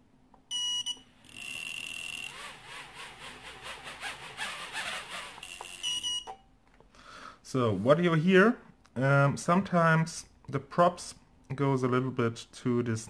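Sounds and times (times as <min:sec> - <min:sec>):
buzzer beeps: 0:00.5 - 0:02.3, 0:05.4 - 0:06.5
propeller scraping frame: 0:02.3 - 0:05.4.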